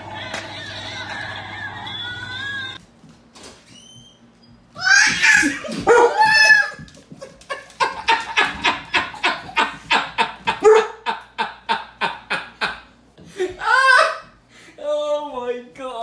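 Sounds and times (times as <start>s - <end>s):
child screaming: 4.8s - 6.9s
children squealing: 4.8s - 6.9s.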